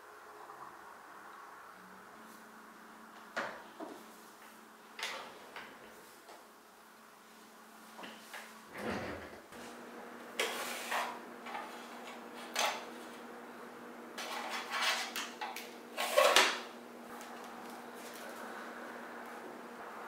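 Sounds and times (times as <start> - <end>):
drawer sliding open and shut: 8.7 - 9.4.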